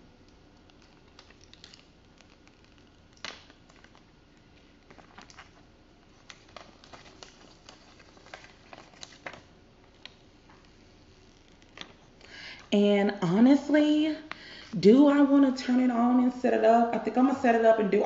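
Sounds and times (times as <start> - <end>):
light clicks and crackles: 0.2 - 5.6
plastic film crinkling: 0.4 - 12.7.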